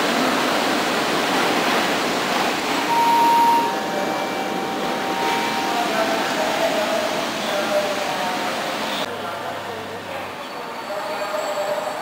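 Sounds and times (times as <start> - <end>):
train carriage rushing noise: 0.0 - 9.1
faint high whine: 2.9 - 9.0.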